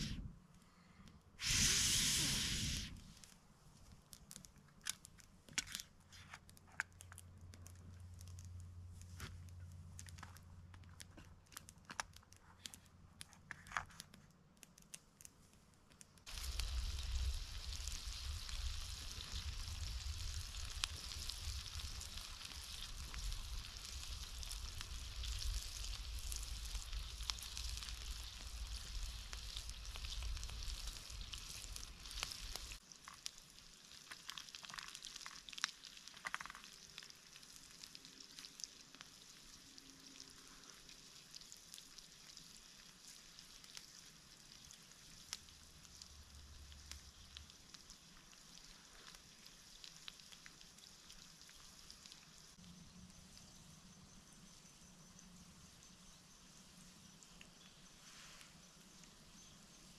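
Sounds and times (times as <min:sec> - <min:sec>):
vegetables sizzling in oil: 0:01.4 - 0:03.2, 0:16.3 - 0:52.9.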